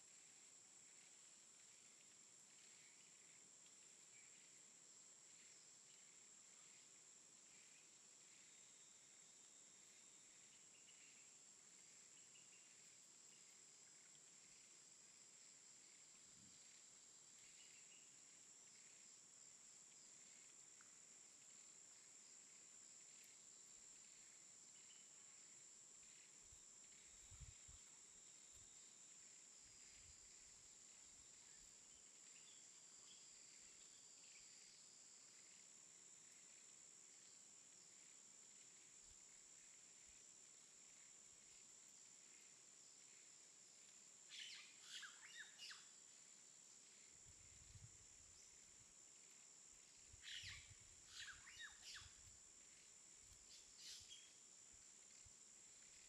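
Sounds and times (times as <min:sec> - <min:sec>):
high insect drone: 0:00.0 - 0:56.0
bird chirps: 0:44.3 - 0:45.9, 0:50.2 - 0:52.2, 0:53.5 - 0:54.4.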